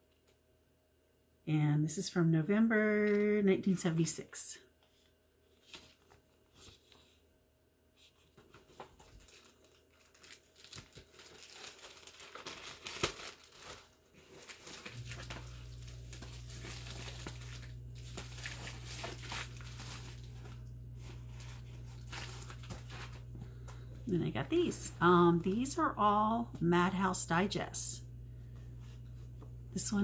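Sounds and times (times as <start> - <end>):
packaging crinkling and tearing: 8.4 - 23.8
steady low hum: 14.8 - 30.0.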